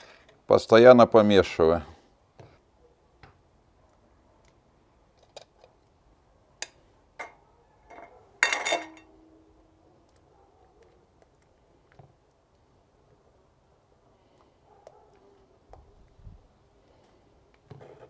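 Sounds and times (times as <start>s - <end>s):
metal spoon clinking on cookware: 7.2s - 9.1s.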